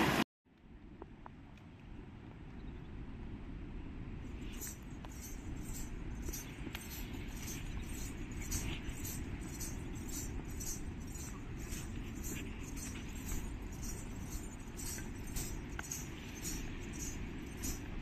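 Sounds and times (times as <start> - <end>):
steady low rumble: 0.6 - 18.0
small bells jingling: 4.3 - 18.0.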